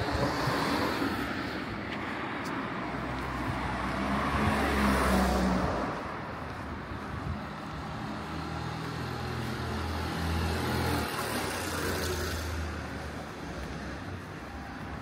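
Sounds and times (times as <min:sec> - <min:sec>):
vehicle passing: 0:03.2 - 0:06.6.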